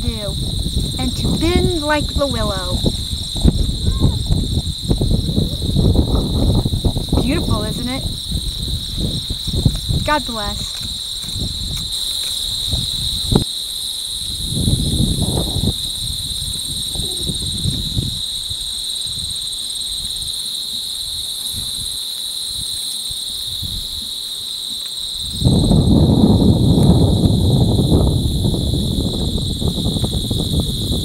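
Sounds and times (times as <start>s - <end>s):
low rumbles and thumps: 0.0s - 11.9s
insect buzzing: 0.0s - 31.0s
pulsing insect trill: 0.0s - 31.0s.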